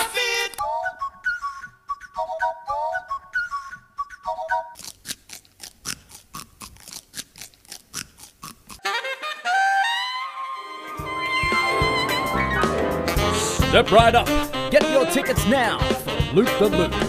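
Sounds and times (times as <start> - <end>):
celery crunching: 4.8 - 8.8
saxophone: 8.8 - 17.0.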